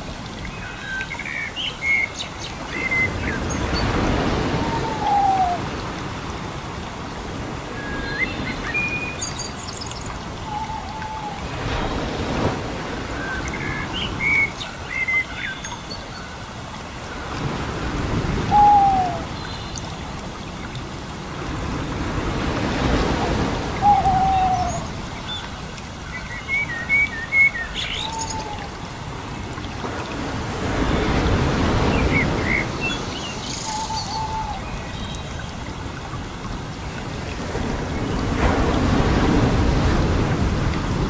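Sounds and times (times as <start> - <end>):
songbirds chirping and whistling: 31.9 - 35.4.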